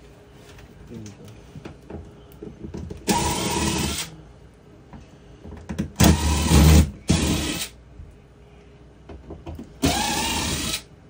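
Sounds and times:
cordless drill running: 3.1 - 4.1, 6.0 - 7.7, 9.8 - 10.9.

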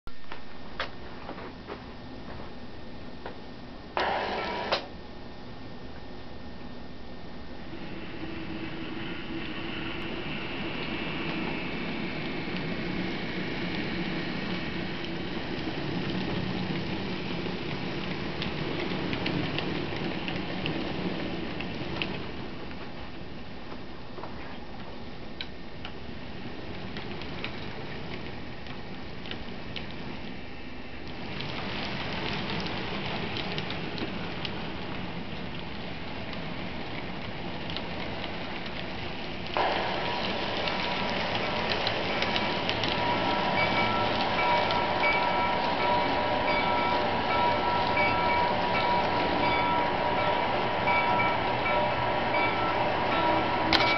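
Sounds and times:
light clicks of train cars: 0.1 - 5.0, 8.4 - 53.9
model train rolling hum: 0.1 - 53.9
loud multi-tone sound: 39.6 - 53.9.

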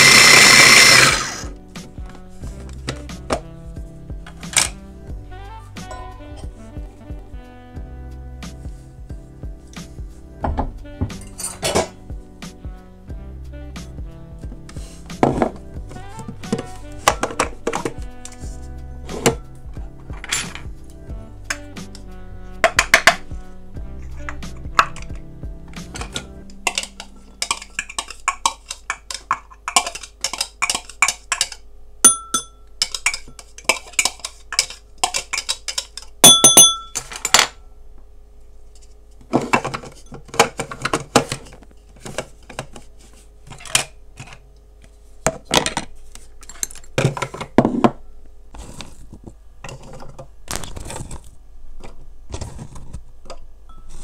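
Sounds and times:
background music: 0.0 - 33.0
utensils clinking against dishes: 11.1 - 12.0, 20.0 - 20.7, 25.8 - 37.6, 45.5 - 47.9, 53.7 - 54.0
ringing metallic clinks: 32.0 - 32.7, 36.2 - 37.1.

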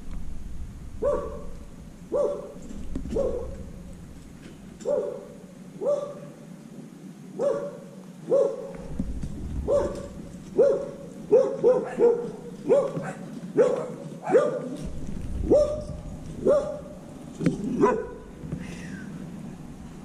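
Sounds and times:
small dog barking: 1.0 - 3.6, 4.8 - 6.4, 7.4 - 8.9, 9.7 - 14.8, 15.4 - 17.0, 17.8 - 18.3.

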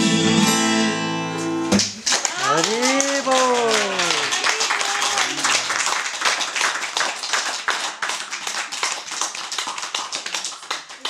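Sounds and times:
small group applauding: 1.7 - 11.0.

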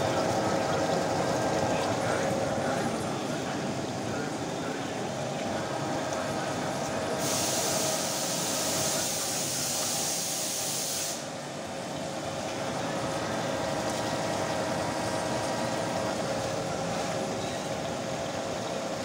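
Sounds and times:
milling machine whine: 0.0 - 19.0
loud high hiss: 7.2 - 11.3.

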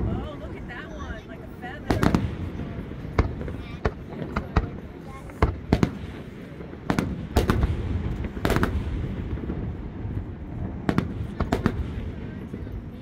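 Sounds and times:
fireworks booming: 0.0 - 13.0.

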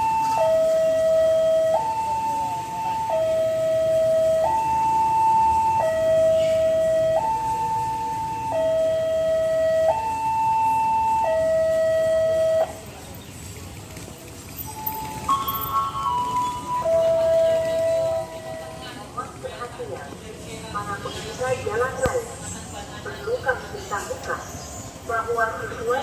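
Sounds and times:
level crossing two-tone alarm: 0.0 - 12.8.

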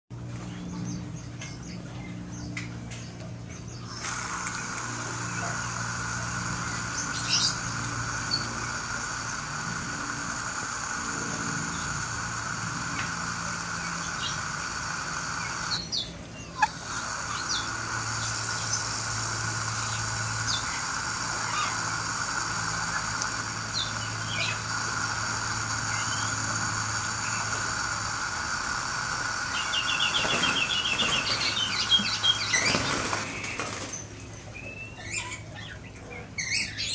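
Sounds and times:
birds chirping: 0.2 - 36.9
garden hose spray hissing: 3.7 - 34.3
bird chattering trill: 3.8 - 33.7.

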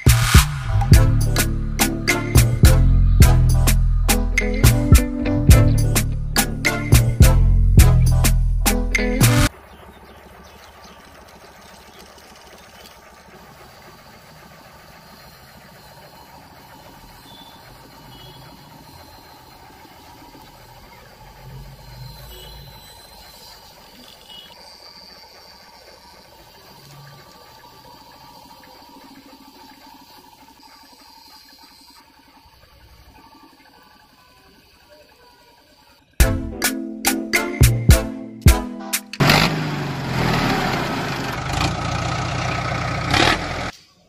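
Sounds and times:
small electric motor running: 11.6 - 36.2.

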